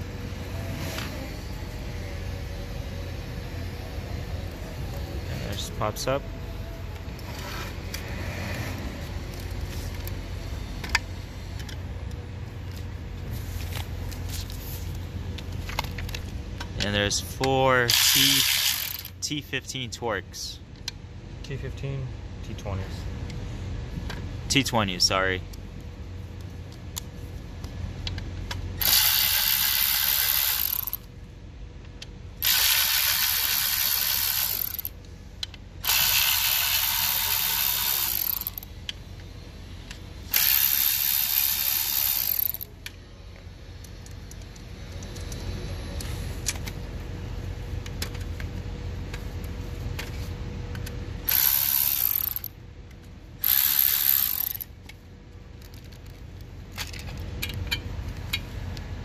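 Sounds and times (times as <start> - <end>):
cordless electric ratchet running: 17.9 - 19.2, 28.8 - 31.1, 32.4 - 35.0, 35.8 - 38.7, 40.3 - 42.7, 51.2 - 52.5, 53.4 - 54.7.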